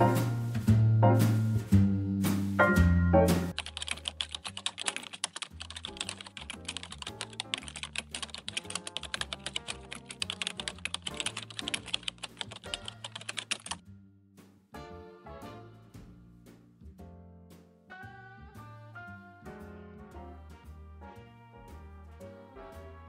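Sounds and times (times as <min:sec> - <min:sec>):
soft background music with bass: 0:00.0 - 0:03.6, 0:13.8 - 0:23.0
keyboard typing clicks: 0:03.5 - 0:13.8.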